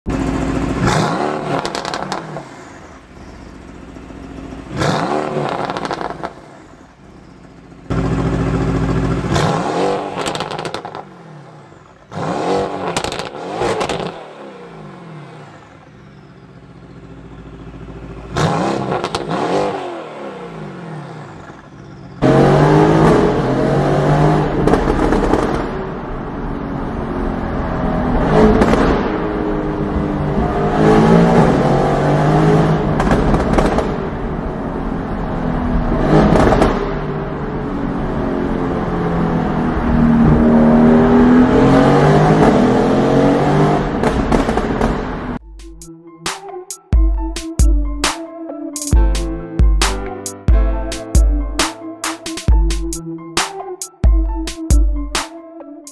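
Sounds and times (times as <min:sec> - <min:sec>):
car engine revving with pops: 0:00.1 - 0:26.1, 0:28.2 - 0:34.4, 0:35.8 - 0:37.4, 0:40.1 - 0:48.2.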